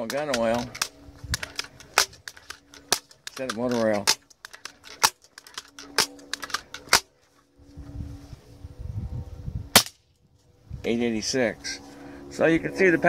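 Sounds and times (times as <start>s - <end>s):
sharp air rifle clicks: 0.0s - 7.2s
low rumble: 5.6s - 13.0s.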